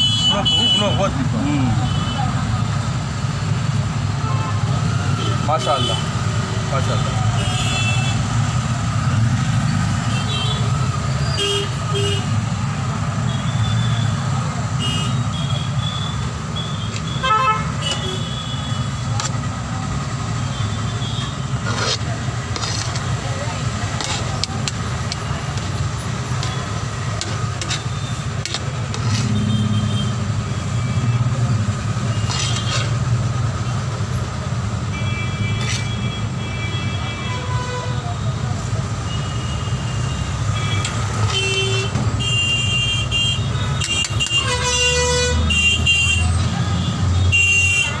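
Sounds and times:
vehicle horns tooting: 0:00.0 - 0:02.3, 0:07.0 - 0:08.3, 0:13.2 - 0:19.5, 0:26.3 - 0:33.0, 0:34.8 - 0:38.2, 0:39.0 - 0:48.0
traffic engine rumble: 0:00.0 - 0:48.0.

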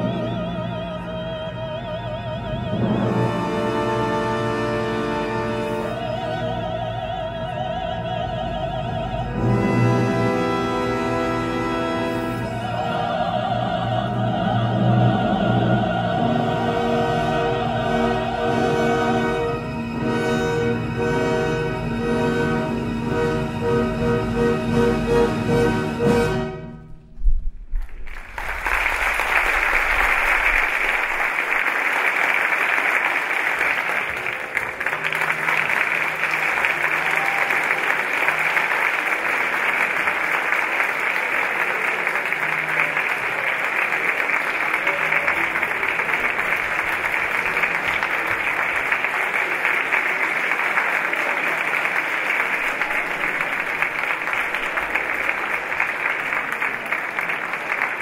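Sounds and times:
large audience applauding: 0:27.8 - 0:58.0.

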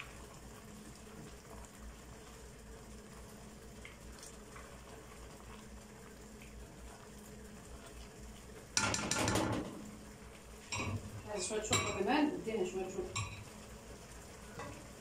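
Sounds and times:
pot of stew bubbling: 0:00.0 - 0:15.0
spatula tapping pot: 0:08.8 - 0:09.8.

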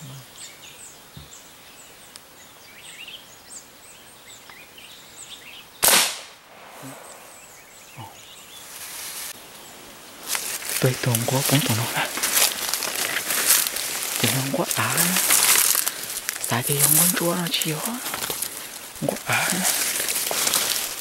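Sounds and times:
small birds chirping: 0:00.0 - 0:06.0, 0:06.6 - 0:21.0
rifle shot: 0:05.8 - 0:07.5.

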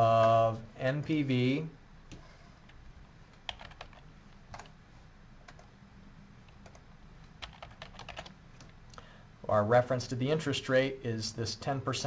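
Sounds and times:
computer keyboard keystrokes: 0:03.4 - 0:04.8, 0:06.5 - 0:08.8.

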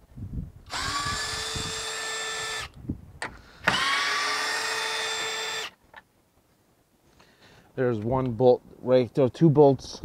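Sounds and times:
cordless screwdriver whining: 0:00.7 - 0:02.8, 0:03.6 - 0:05.8.

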